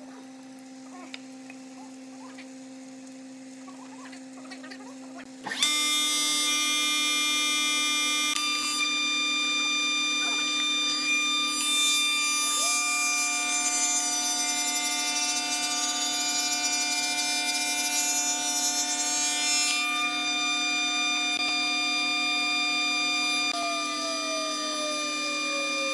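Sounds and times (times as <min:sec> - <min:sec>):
cutter cutting wood board: 0:05.4 - 0:25.9
wood shaper high whine: 0:05.4 - 0:25.9.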